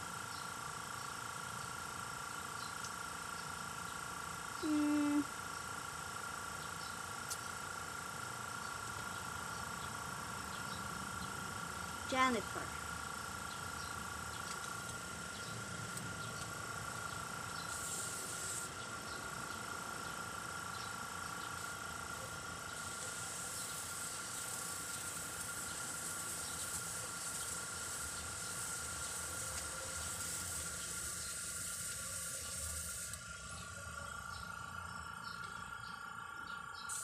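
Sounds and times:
steady high whine: 0:05.9 - 0:37.0
airbrush hissing: 0:17.6 - 0:18.8, 0:21.5 - 0:33.2.

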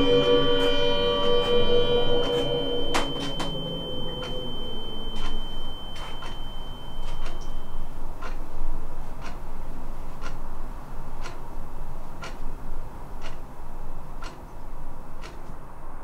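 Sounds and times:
air-raid siren: 0:00.0 - 0:08.1
steady high tone: 0:00.0 - 0:08.2.

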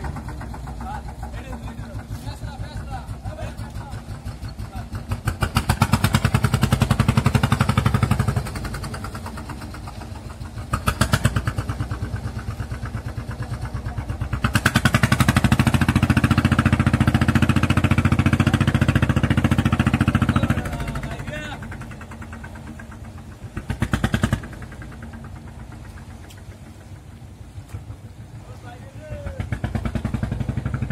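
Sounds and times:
boat engine chugging: 0:00.0 - 0:30.9.

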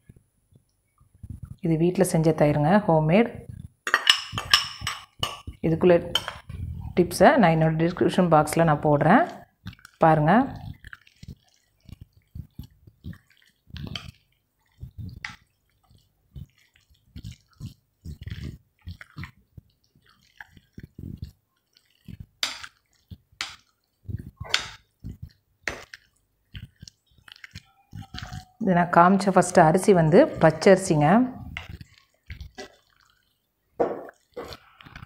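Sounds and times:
hand squishing wet rice: 0:08.5 - 0:35.0.

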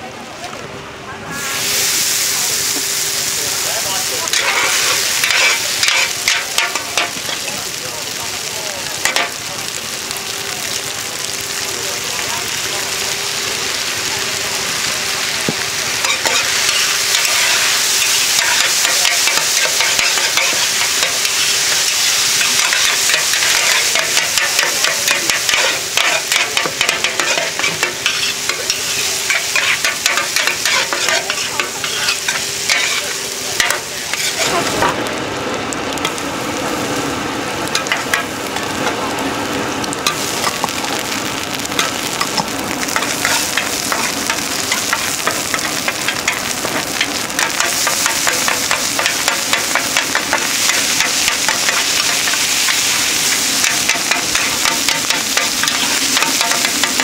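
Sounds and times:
food frying in oil: 0:01.2 - 0:57.0
metal spatulas scraping a pan: 0:04.3 - 0:07.1, 0:16.0 - 0:34.6.

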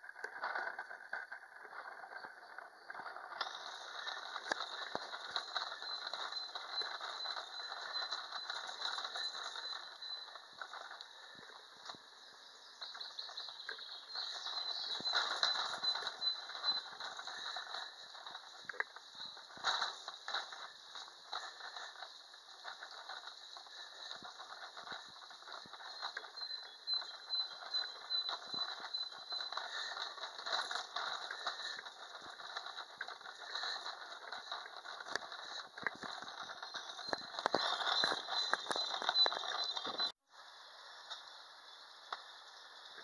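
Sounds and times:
footsteps on brick paving: 0:00.0 - 0:12.1, 0:12.7 - 0:40.2
steady background hiss: 0:40.3 - 0:43.0.

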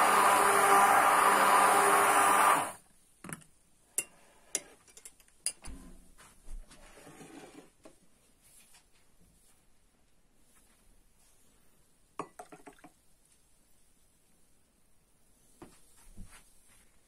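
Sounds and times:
hand blender frothing milk: 0:00.0 - 0:02.8
glass mug clicks and knocks on table: 0:12.2 - 0:12.9.

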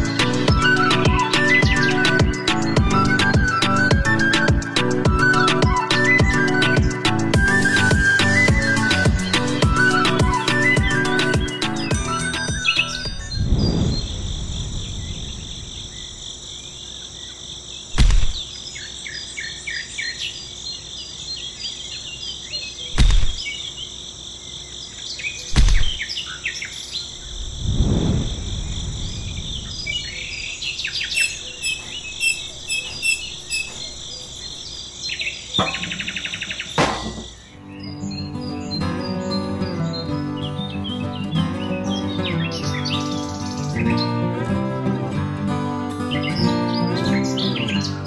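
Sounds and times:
birds chirping: 0:00.0 - 0:48.0
high insect drone: 0:13.0 - 0:19.8, 0:20.4 - 0:38.1
dull thumps: 0:23.0 - 0:23.4, 0:25.6 - 0:26.0, 0:35.6 - 0:37.4.

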